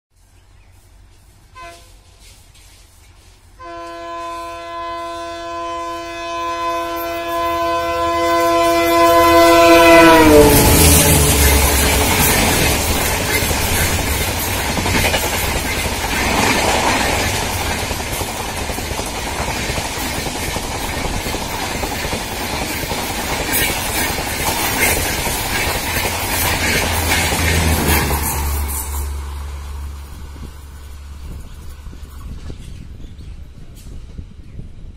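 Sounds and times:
train rumbling: 0:00.2 - 0:34.9
diesel locomotive horn: 0:01.5 - 0:02.0, 0:03.6 - 0:13.9, 0:26.6 - 0:30.5.

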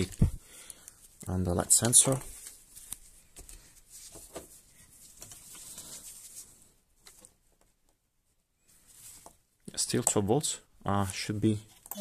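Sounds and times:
soft clicks and rustles: 0:00.0 - 0:08.0.

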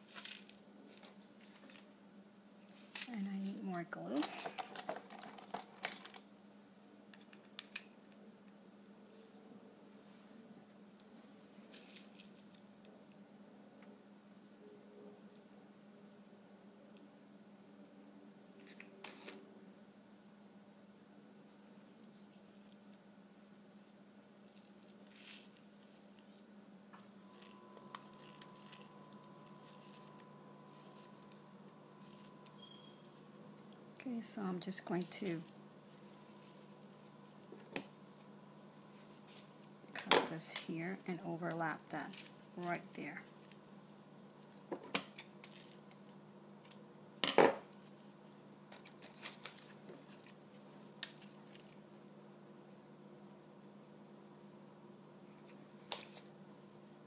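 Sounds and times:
steady low hum: 0:07.9 - 0:57.0
handling rustles: 0:24.5 - 0:26.4, 0:42.0 - 0:43.8.

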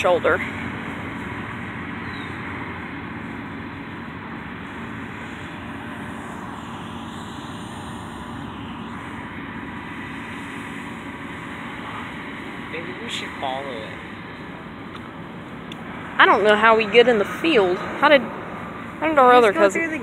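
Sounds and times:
combine harvester engine drone: 0:00.0 - 0:20.0.

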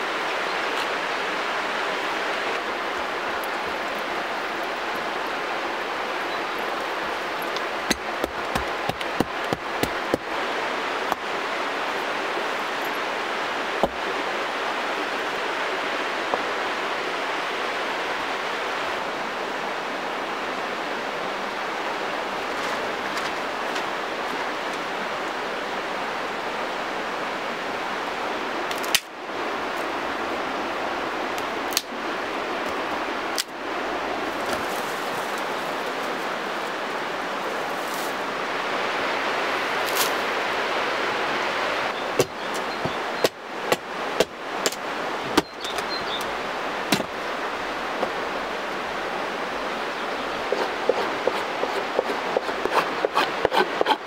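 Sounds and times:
steady rushing noise: 0:00.0 - 0:54.0
hatchet chopping on wooden block: 0:07.9 - 0:10.2.

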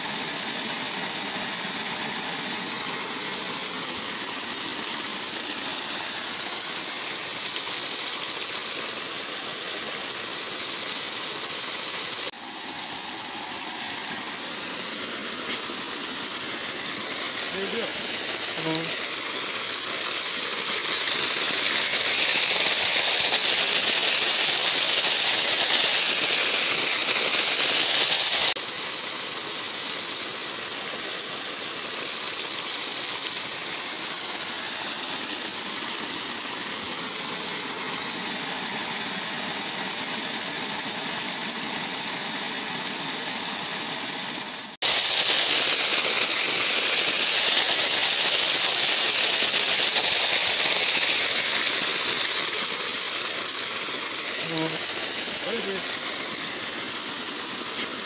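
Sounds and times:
water jet splashing on crops: 0:00.0 - 0:58.0.

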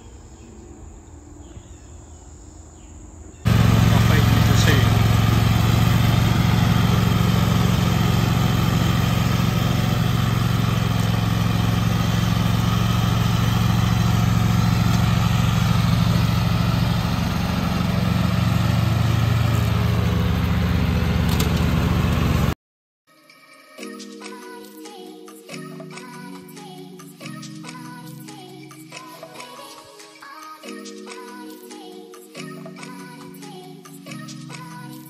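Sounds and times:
riding lawn mower engine: 0:03.4 - 0:22.6.

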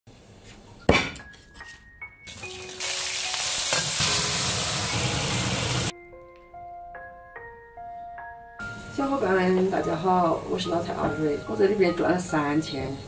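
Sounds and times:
soft background music: 0:00.3 - 0:13.0
fish sizzling in sauce: 0:02.3 - 0:05.9.

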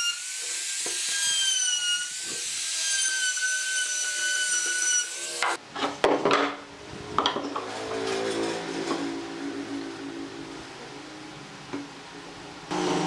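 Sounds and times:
router cutting wood: 0:00.0 - 0:05.6, 0:12.7 - 0:13.0.

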